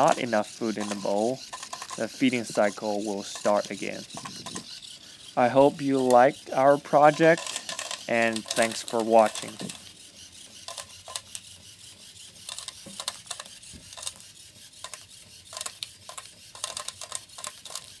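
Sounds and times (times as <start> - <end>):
light clicks and rattles: 7.1 - 9.8.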